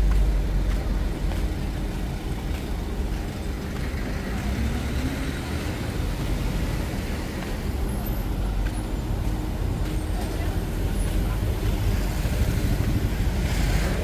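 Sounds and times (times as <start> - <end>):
road traffic rumble: 0.0 - 14.0
vehicle engine revving: 10.7 - 14.0.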